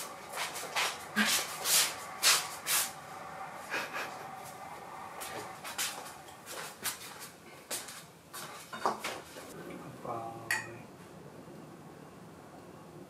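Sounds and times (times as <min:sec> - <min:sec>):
tableware clinking: 0:10.5 - 0:10.8.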